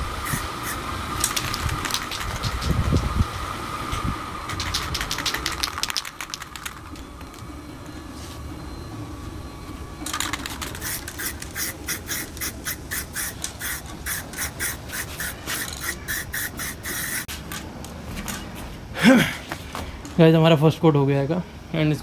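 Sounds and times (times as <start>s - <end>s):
spray paint can hissing bursts: 0.2s - 3.3s, 4.5s - 6.9s, 10.0s - 17.4s.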